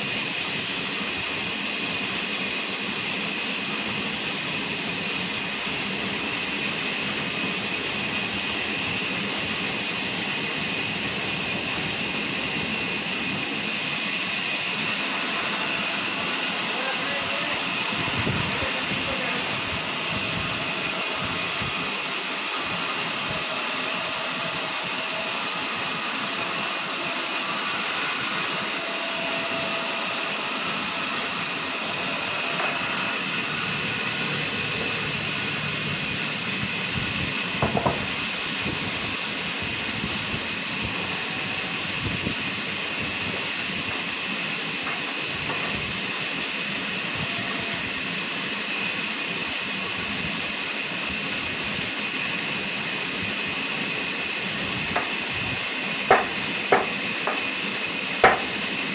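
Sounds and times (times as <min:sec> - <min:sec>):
band saw cutting log: 0:00.0 - 0:58.9
brief knock: 0:37.6 - 0:38.0.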